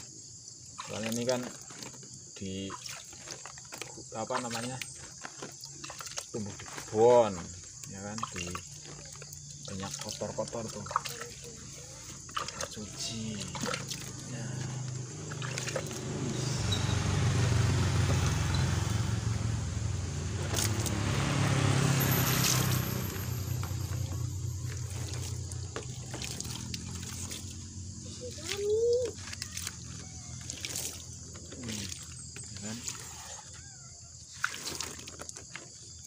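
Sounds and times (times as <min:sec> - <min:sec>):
water splashing into plant pot: 0:00.7 - 0:33.1, 0:34.3 - 0:36.0
vehicle engine running: 0:14.1 - 0:28.5.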